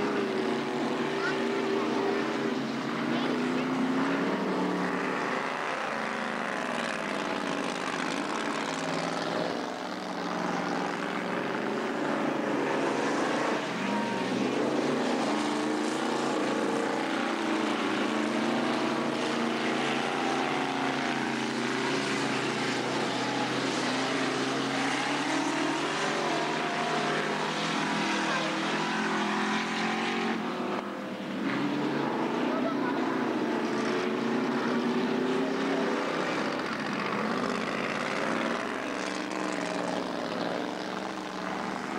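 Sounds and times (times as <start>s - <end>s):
racing car engines: 0.0s - 41.9s.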